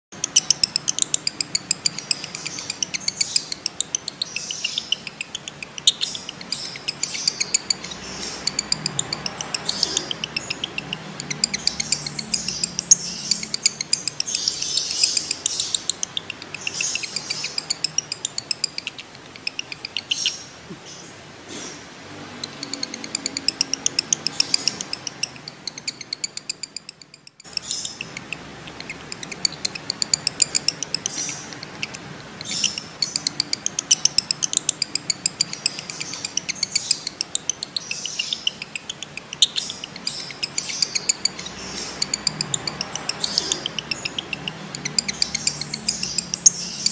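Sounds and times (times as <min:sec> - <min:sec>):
lovebird chattering chirps: 0:00.1 - 0:46.9.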